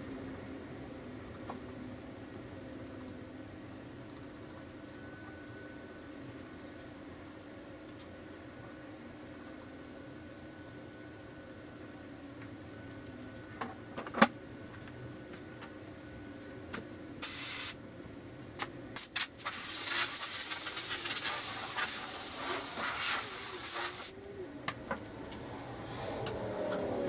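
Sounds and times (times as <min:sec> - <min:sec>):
compressed air hissing from air gun: 0:17.2 - 0:17.8, 0:19.0 - 0:24.2.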